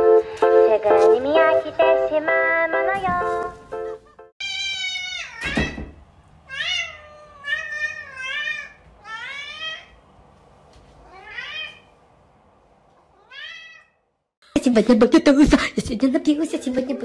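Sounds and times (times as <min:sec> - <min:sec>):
cat meowing: 0:04.4 - 0:05.8, 0:06.5 - 0:10.0, 0:11.0 - 0:11.9, 0:13.1 - 0:14.0.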